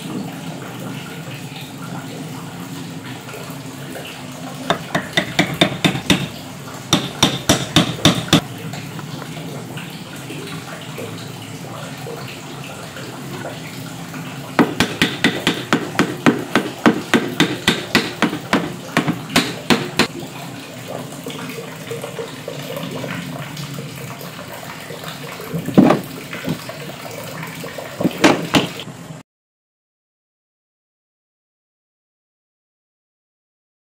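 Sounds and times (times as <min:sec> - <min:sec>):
sharp knocks on wood: 0:04.7 - 0:08.4, 0:14.6 - 0:20.1, 0:25.7 - 0:26.6, 0:28.0 - 0:28.8.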